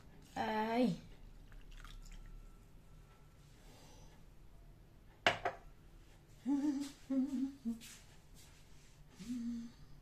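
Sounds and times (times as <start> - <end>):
faint trickle of pouring liquid: 1.4 - 2.5.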